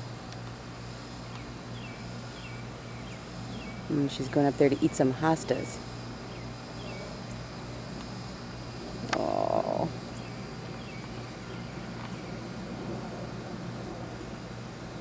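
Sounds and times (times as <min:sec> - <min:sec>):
steady low hum: 0:00.0 - 0:15.0
frog croaking: 0:09.1 - 0:10.0.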